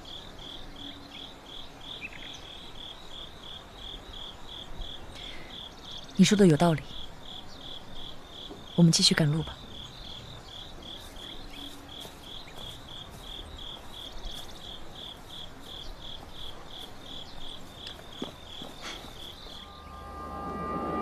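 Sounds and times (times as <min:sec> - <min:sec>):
cricket chirping: 0:00.0 - 0:21.0
music: 0:19.6 - 0:21.0.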